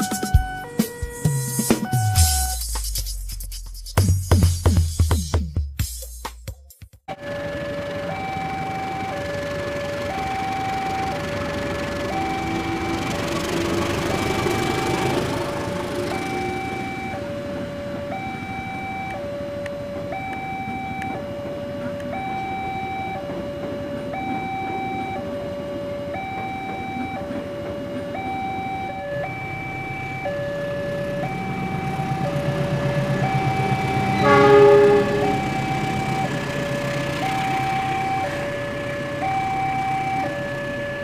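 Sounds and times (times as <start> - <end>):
passing train rumble: 7.2 - 18.5, 19.2 - 39.3
locomotive horn: 32.5 - 37.0
level crossing two-tone chime: 34.2 - 35.8.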